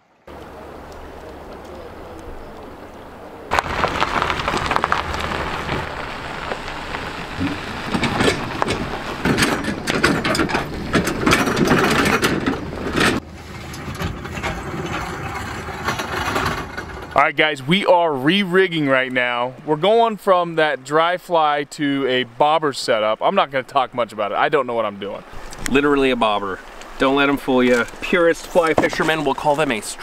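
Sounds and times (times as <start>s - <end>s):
river rushing: 0.3s - 13.4s, 24.0s - 30.0s
trailer rattling over gravel: 3.5s - 17.8s, 27.0s - 30.0s.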